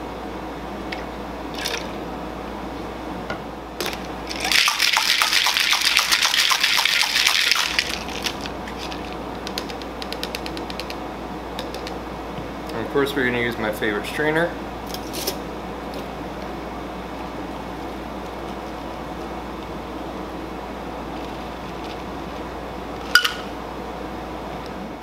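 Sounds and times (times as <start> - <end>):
ice rattling in cocktail shaker: 3.8 - 9.2.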